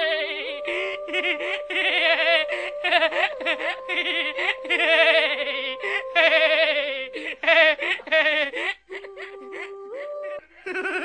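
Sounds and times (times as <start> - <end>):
high-pitched giggling: 0.0 - 11.0.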